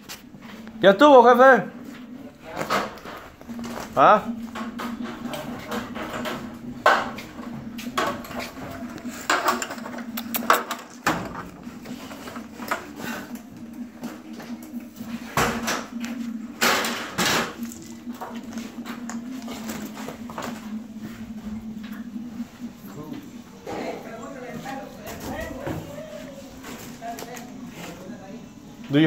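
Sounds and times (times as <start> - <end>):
steady low hum: 0.0 - 29.0
knocks and clatter of handling: 2.6 - 13.4.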